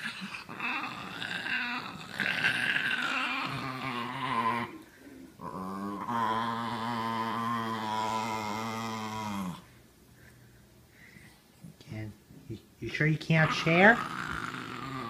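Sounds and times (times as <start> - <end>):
small dog growling: 0.0 - 4.8, 5.4 - 9.7, 13.4 - 15.0.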